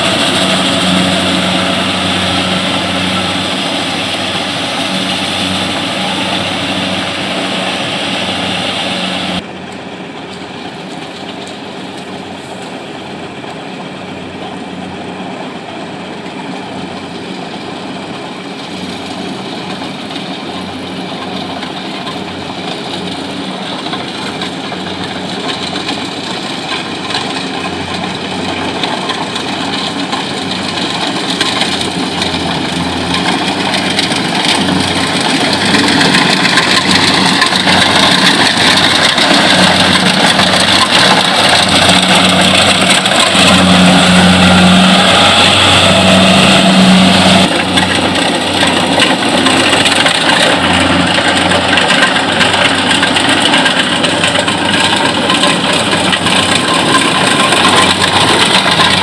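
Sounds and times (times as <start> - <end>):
combine harvester running: 0.0 - 59.0.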